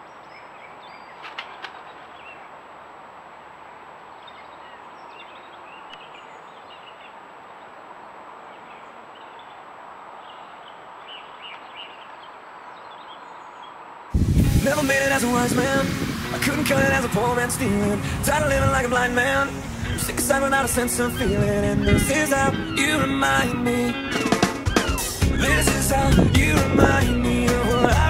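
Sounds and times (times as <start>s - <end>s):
faint songbird chirps: 0.0s - 2.6s, 3.4s - 14.2s, 16.7s - 28.0s
steady hiss: 14.1s - 22.4s.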